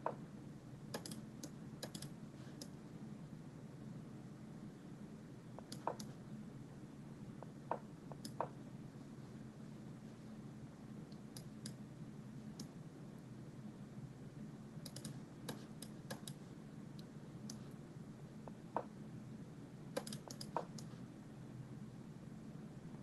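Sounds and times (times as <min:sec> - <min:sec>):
faint low hum: 0:00.0 - 0:23.0
computer clicking: 0:00.9 - 0:02.8, 0:05.6 - 0:06.2, 0:14.8 - 0:16.4, 0:20.0 - 0:21.0.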